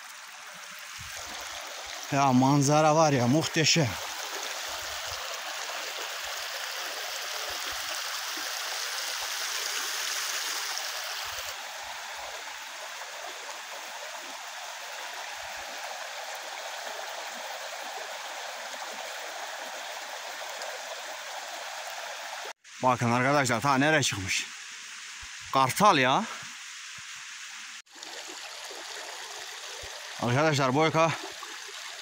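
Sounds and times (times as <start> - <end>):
mountain stream rushing: 0.0 - 32.0.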